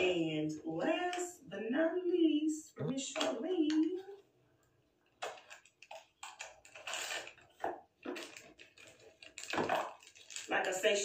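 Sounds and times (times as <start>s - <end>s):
plastic packaging crinkling: 5.1s - 11.0s.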